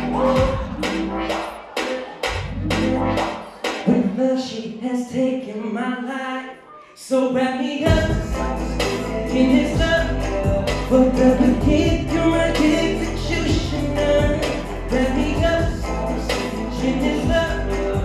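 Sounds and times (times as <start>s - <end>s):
heavy bass beat: 0.0s - 4.2s, 7.8s - 18.0s
man singing into microphone: 3.8s - 18.0s.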